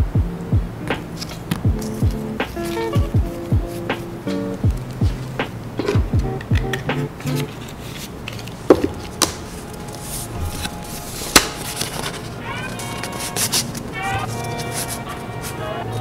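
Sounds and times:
background music: 0:00.0 - 0:16.0
stiff card tapping and clicking: 0:00.8 - 0:09.4, 0:11.3 - 0:12.1.

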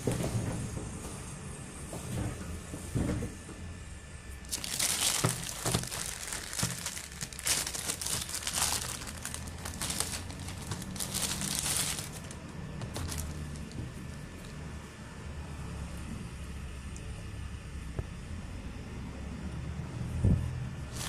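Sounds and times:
plastic bag crinkling: 0:04.5 - 0:14.6.

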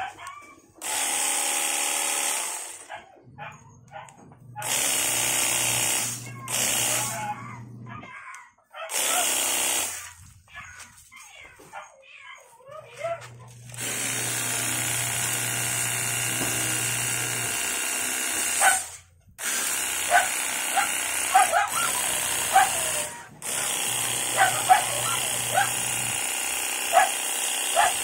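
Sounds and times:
pump motor humming: 0:04.6 - 0:07.8, 0:13.4 - 0:28.0.

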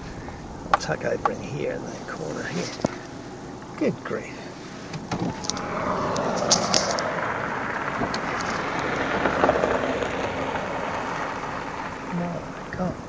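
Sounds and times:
fire truck rushing past: 0:05.3 - 0:12.6.

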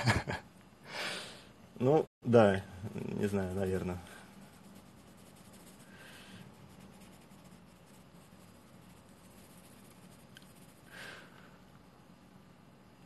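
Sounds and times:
pencil scratching on paper: 0:03.2 - 0:11.0.

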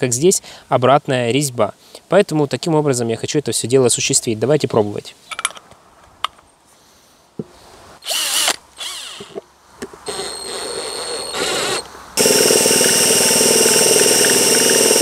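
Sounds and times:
cordless drill whining: 0:08.0 - 0:09.4, 0:10.1 - 0:15.0.

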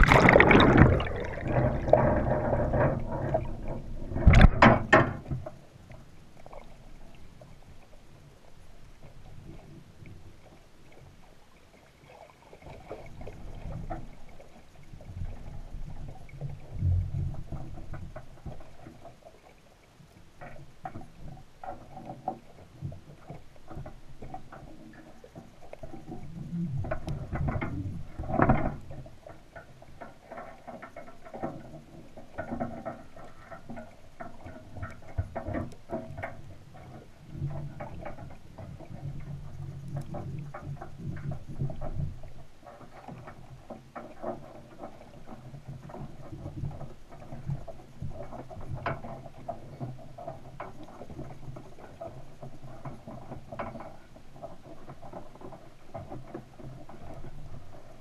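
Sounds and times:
clicks and crackles: 0:00.0 - 0:08.0, 0:20.1 - 0:58.0
underwater rumbling of water: 0:00.0 - 0:58.0.

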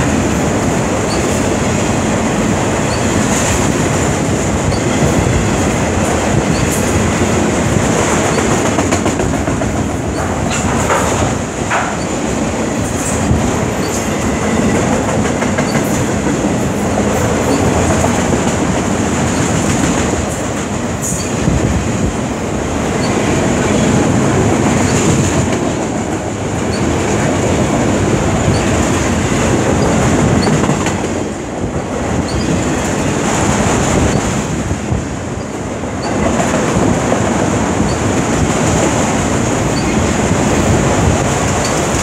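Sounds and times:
train wheels rumbling on rail: 0:00.0 - 0:42.0
clicks over rail joints: 0:08.0 - 0:12.2.

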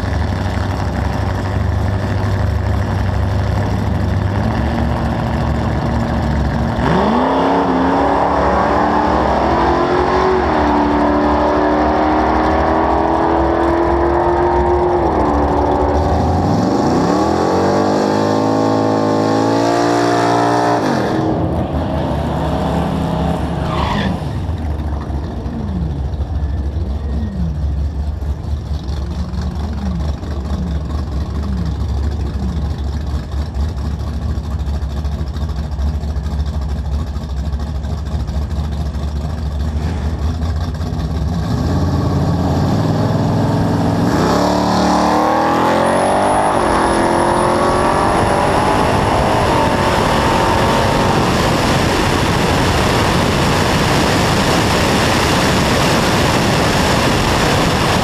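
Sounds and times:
drag car engine revving: 0:00.0 - 0:58.0
wind noise: 0:46.8 - 0:58.0.

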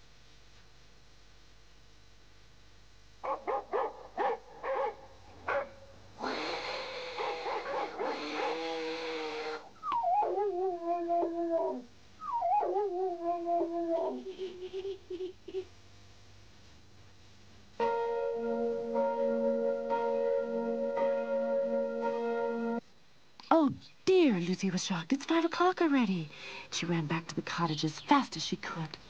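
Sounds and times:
cat hissing snarl: 0:06.2 - 0:09.7
dog whining: 0:06.2 - 0:14.4.

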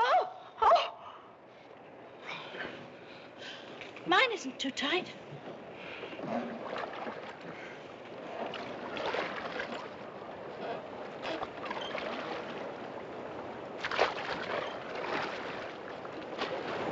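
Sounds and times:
water sloshing: 0:01.6 - 0:16.9
oars splashing in water: 0:05.4 - 0:16.9.

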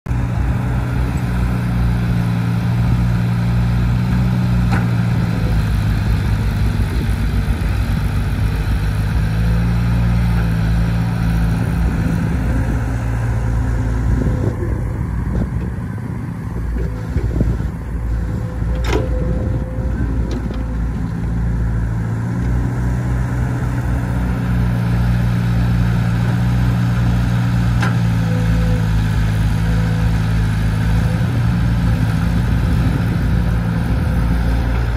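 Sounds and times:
excavator diesel engine running: 0:00.1 - 0:34.9.

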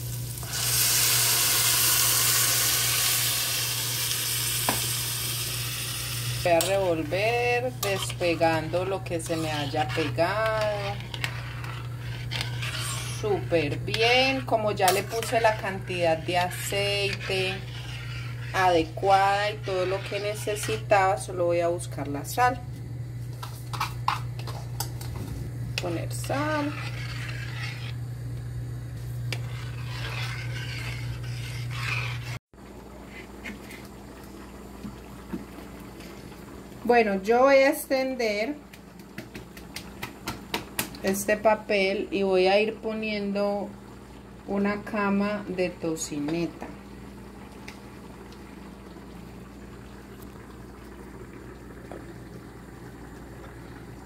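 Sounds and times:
rice bubbling in a pot: 0:00.0 - 0:54.0
steady low hum: 0:05.4 - 0:37.4
spoon scraping metal pot: 0:06.4 - 0:21.3, 0:25.8 - 0:28.0, 0:29.3 - 0:32.4.

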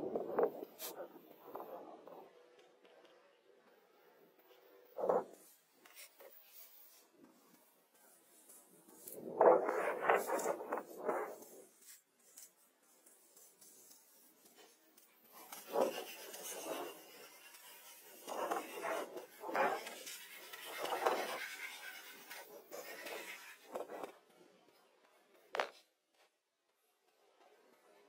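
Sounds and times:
scraping on wooden planks: 0:14.4 - 0:24.1.

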